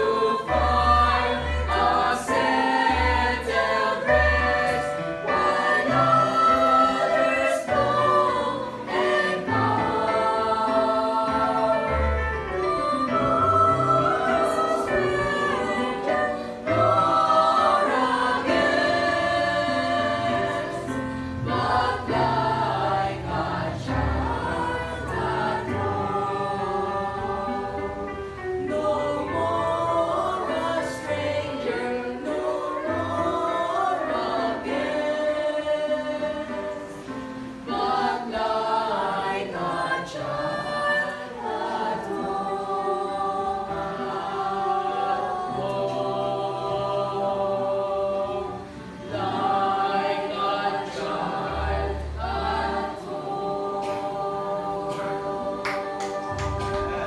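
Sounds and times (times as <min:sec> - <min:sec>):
choir singing a hymn: 0:00.0 - 0:57.0.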